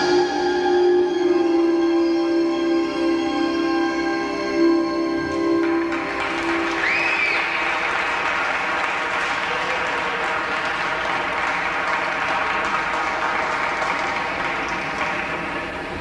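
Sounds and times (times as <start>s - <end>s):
audience applauding: 5.6s - 16.0s.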